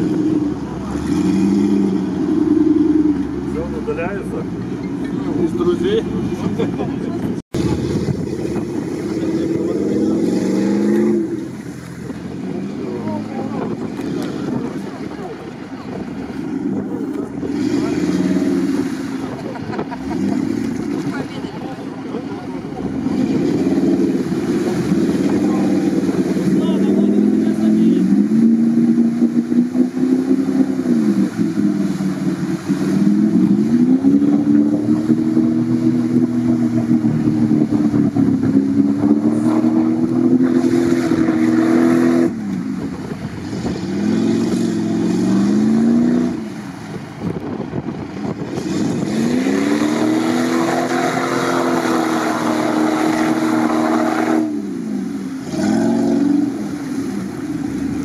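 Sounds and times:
engine revving hard: 0:00.0 - 0:04.4, 0:07.5 - 0:11.8, 0:16.6 - 0:21.4, 0:22.8 - 0:42.5, 0:43.4 - 0:46.7, 0:48.4 - 0:58.0.

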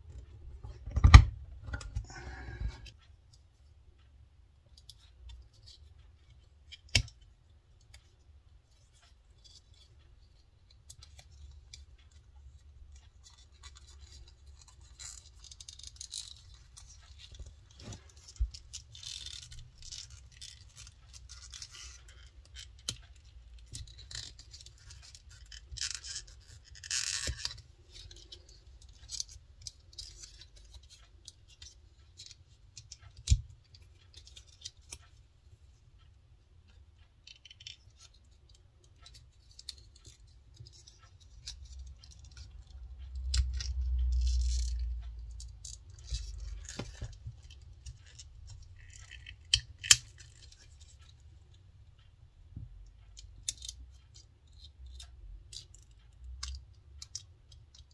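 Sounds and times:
metallic clicks of binder clip: 0:37.3 - 0:51.1.

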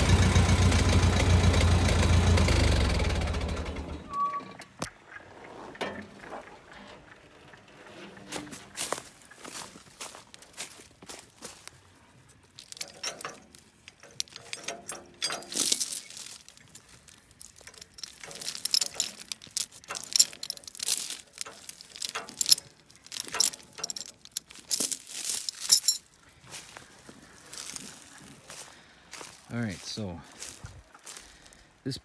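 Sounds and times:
chain clinking and rattling: 0:12.6 - 0:26.0.

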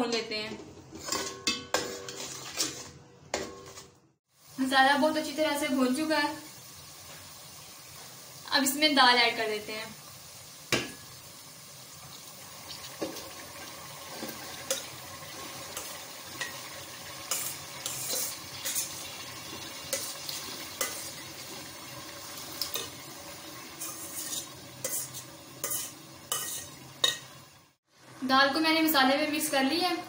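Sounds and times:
spices sizzling in a metal pot: 0:00.0 - 0:30.0
steel spoon scraping a pot: 0:00.9 - 0:04.0, 0:17.3 - 0:21.3, 0:23.7 - 0:27.3.

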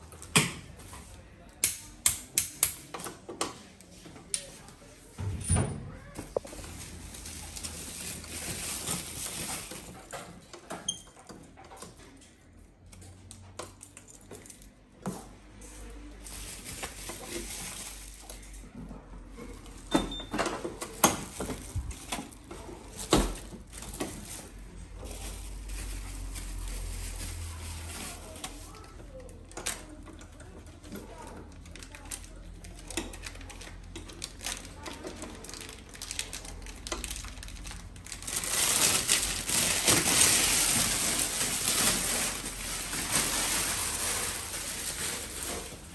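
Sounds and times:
plastic wrap rustling: 0:06.0 - 0:10.4, 0:16.0 - 0:18.5, 0:20.6 - 0:29.3, 0:31.1 - 0:45.9.

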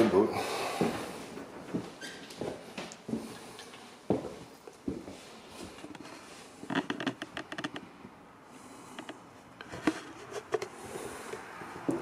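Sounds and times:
footsteps on wooden floor: 0:00.8 - 0:06.1, 0:11.8 - 0:12.0
floor creaks: 0:01.6 - 0:04.3, 0:04.9 - 0:08.0.

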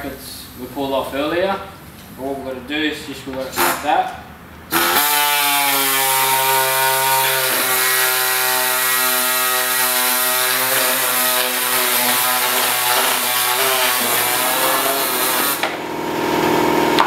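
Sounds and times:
power tool cutting plastic: 0:04.7 - 0:15.8.

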